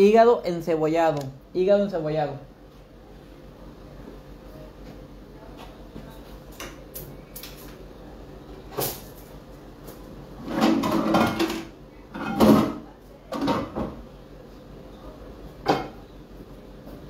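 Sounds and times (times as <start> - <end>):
frying pan and utensils clattering: 10.4 - 12.8.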